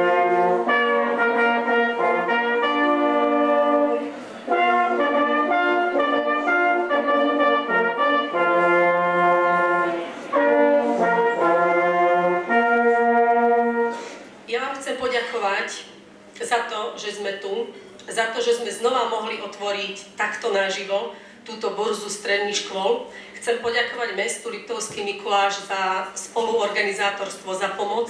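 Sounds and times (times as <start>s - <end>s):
hunting horns playing in harmony: 0.0s - 14.1s.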